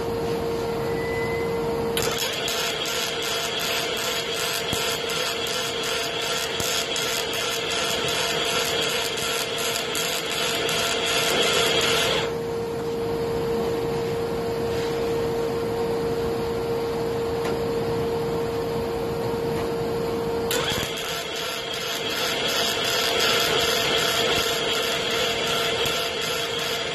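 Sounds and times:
steady hum: 0.0s - 26.9s
welder arc crackling in pulses: 2.0s - 12.3s, 20.5s - 26.9s.

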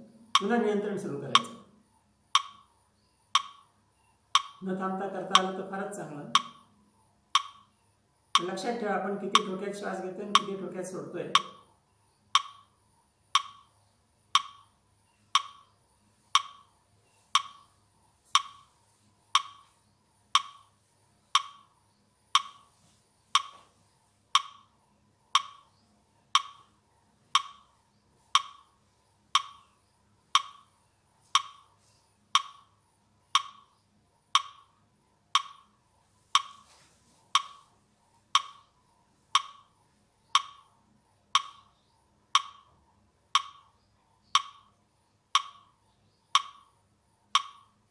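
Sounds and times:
metronome ticking: 0.2s - 1.7s, 2.3s - 2.7s, 3.3s - 3.7s, 4.3s - 5.7s, 6.3s - 6.7s, 7.3s - 7.7s, 8.3s - 8.6s, 9.2s - 11.7s, 12.3s - 12.7s, 13.3s - 13.7s, 14.3s - 16.7s, 17.3s - 17.7s, 18.4s - 18.7s, 19.3s - 19.7s, 20.3s - 20.7s, 21.3s - 21.7s, 22.3s - 22.7s, 23.4s - 23.6s, 24.3s - 24.7s, 25.3s - 25.7s, 26.3s - 27.7s, 28.3s - 29.7s, 30.3s - 30.7s, 31.4s - 31.7s, 32.3s - 35.8s, 36.4s - 36.7s, 37.3s - 37.7s, 38.3s - 38.8s, 39.4s - 40.7s, 41.3s - 45.8s, 46.4s - 47.9s.

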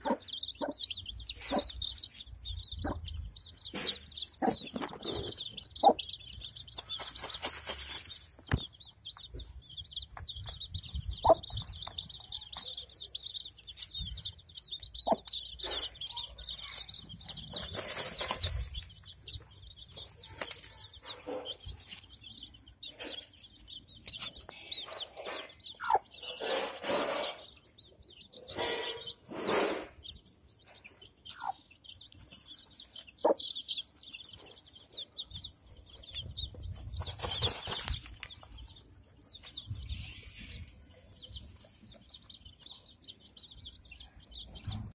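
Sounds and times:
hen clucking: 0.0s - 21.9s, 24.4s - 27.6s, 28.2s - 31.7s, 32.8s - 33.7s
chicks peeping: 0.0s - 44.9s
wings flapping and dirt scattering: 6.7s - 8.7s, 37.0s - 38.4s.

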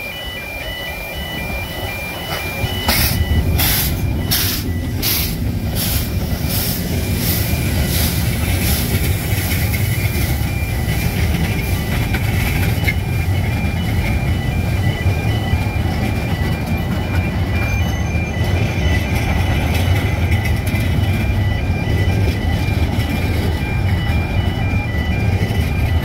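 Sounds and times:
steam locomotive exhaust beats: 0.0s - 26.0s
wheels rumbling on rails: 0.0s - 26.0s.

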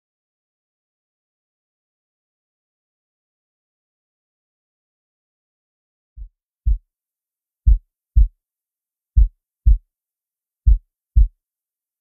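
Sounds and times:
heartbeat thumps: 7.7s - 8.3s, 9.2s - 9.8s, 10.7s - 11.3s.

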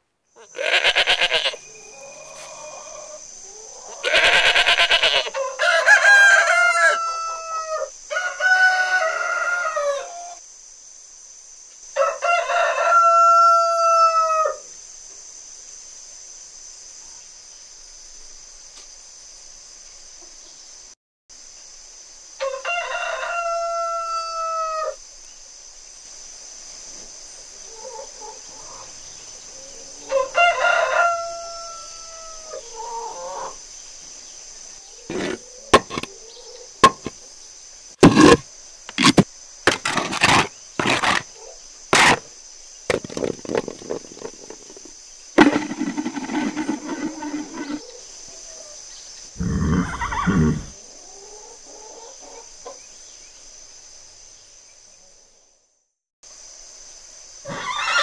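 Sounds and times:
rooster crowing: 0.6s - 10.4s, 12.0s - 14.7s, 22.4s - 25.0s, 29.7s - 33.6s
chickens clucking and squawking: 1.6s - 10.4s, 27.6s - 33.6s, 34.8s - 37.1s, 42.9s - 48.8s, 49.4s - 52.9s
steady high hiss: 7.4s - 12.0s, 14.6s - 39.7s, 56.3s - 58.0s.

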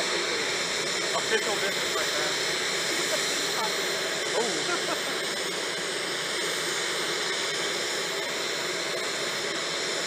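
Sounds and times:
faint high whine: 0.0s - 10.0s
turbine engine hiss: 0.0s - 10.0s.

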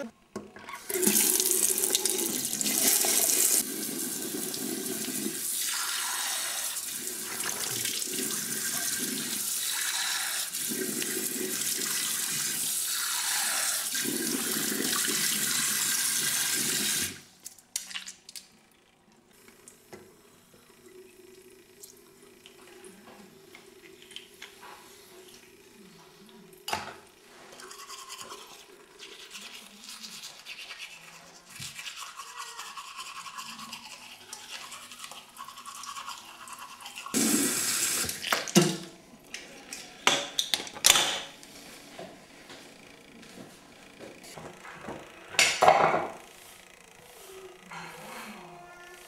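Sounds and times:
tap water running into sink: 37.2s - 38.9s.

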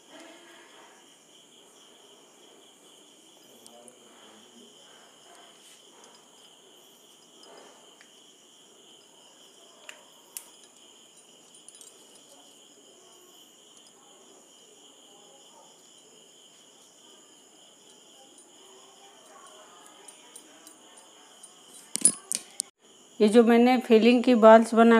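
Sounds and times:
crickets chirring: 0.0s - 24.9s
sharp metal clinks: 4.8s - 8.0s, 9.0s - 22.7s.

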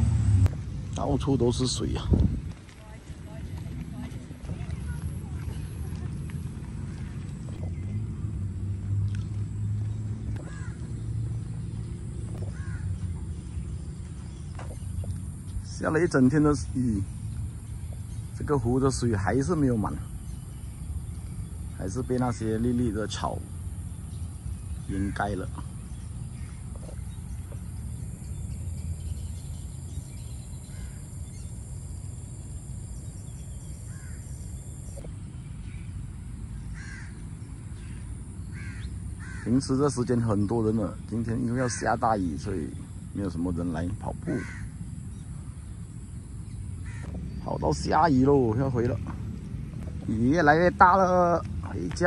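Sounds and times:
wind rumble on microphone: 0.0s - 15.7s
wind on microphone: 1.9s - 7.8s
faint bird calls: 9.2s - 49.1s
short bird calls: 33.2s - 35.9s, 44.2s - 45.7s, 46.5s - 47.6s.

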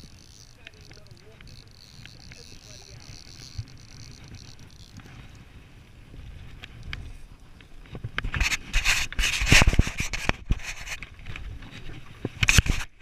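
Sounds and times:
rubbing on the microphone: 8.2s - 11.0s.

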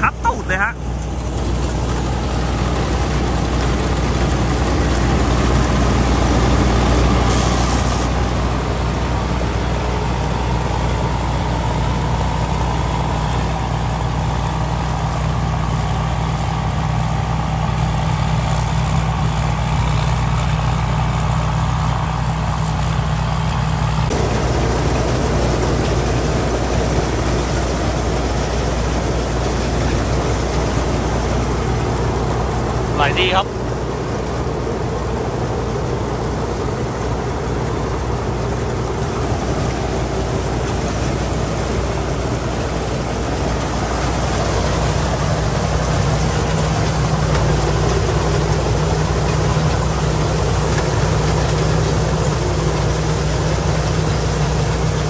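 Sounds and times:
machinery rushing noise: 0.0s - 15.8s, 23.8s - 55.0s
combine harvester engine hum: 0.0s - 55.0s.

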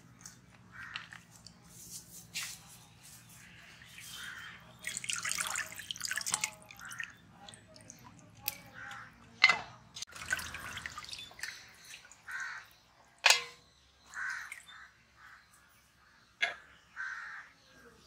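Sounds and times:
water dripping and splashing: 3.4s - 14.8s.

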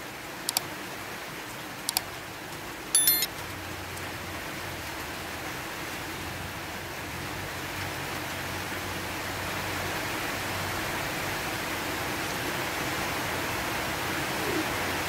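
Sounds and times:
bright electronic chime: 3.0s - 3.3s
cursor clicks: 3.0s - 3.3s.

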